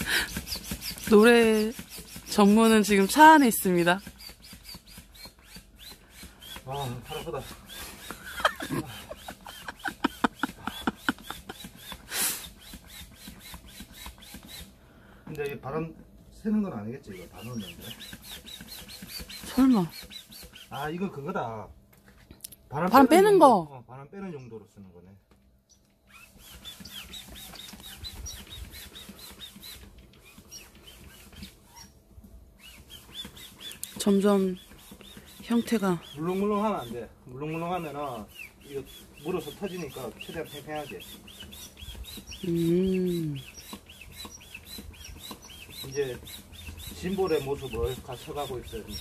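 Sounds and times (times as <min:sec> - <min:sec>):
hand pump strokes squeaking: 0:00.0 - 0:14.8, 0:16.9 - 0:21.3, 0:26.1 - 0:32.0, 0:32.6 - 0:49.0.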